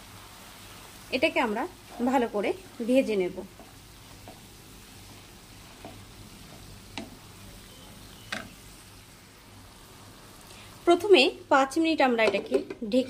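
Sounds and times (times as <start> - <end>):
food sizzling in oil: 0.0 - 13.0
wooden spatula knocking pan: 5.8 - 7.3, 8.3 - 8.6, 12.1 - 13.0.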